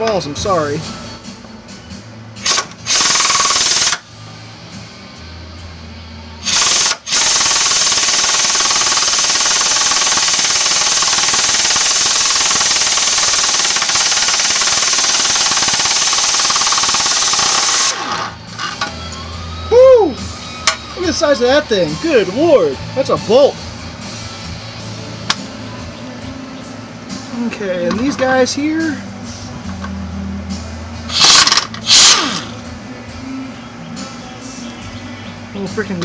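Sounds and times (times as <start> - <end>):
impact wrench hammering: 2.4 - 4.0, 6.5 - 18.1, 31.1 - 32.6.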